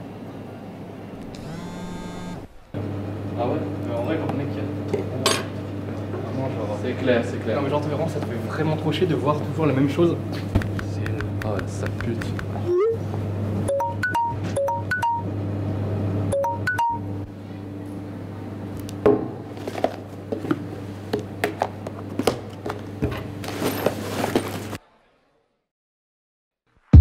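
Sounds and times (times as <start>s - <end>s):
phone notification chimes: 16.4s - 17.0s.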